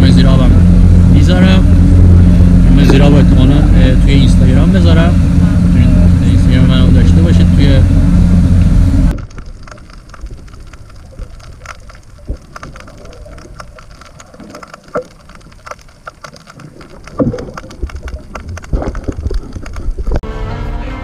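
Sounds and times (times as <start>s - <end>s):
muffled water rumble: 0.0s - 20.2s
underwater crackling clicks: 8.5s - 20.2s.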